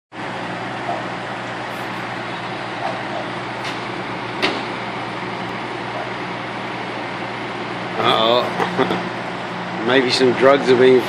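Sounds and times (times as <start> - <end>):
constant low hum: 0.2 - 11.0
fire engines idling: 0.2 - 11.0.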